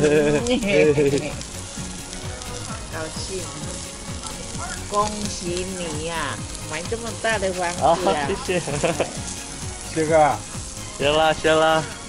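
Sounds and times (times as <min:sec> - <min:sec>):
people chattering: 0:00.0 - 0:01.5, 0:02.2 - 0:09.1
chicken sizzling on a grill: 0:00.0 - 0:12.0.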